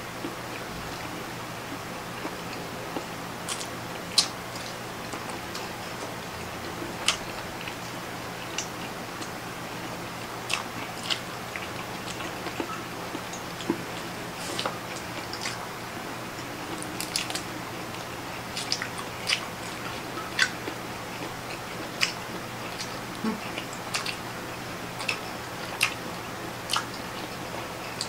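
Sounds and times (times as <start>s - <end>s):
faint steady hum: 0.0s - 28.0s
chewing with clicks and smacks: 2.2s - 7.8s, 10.2s - 15.7s, 16.4s - 24.2s, 24.9s - 26.1s, 26.7s - 28.0s.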